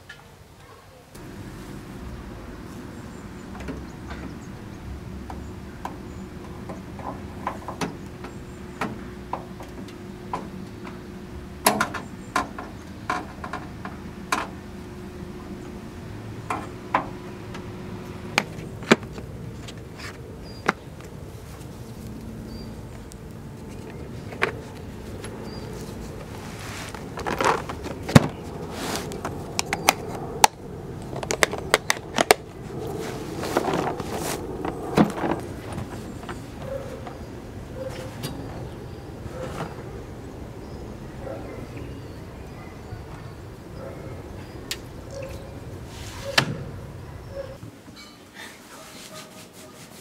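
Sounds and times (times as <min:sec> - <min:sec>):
steady low hum: 0:01.1 - 0:48.0
hand tools clicking and knocking: 0:05.2 - 0:11.0, 0:11.6 - 0:14.6.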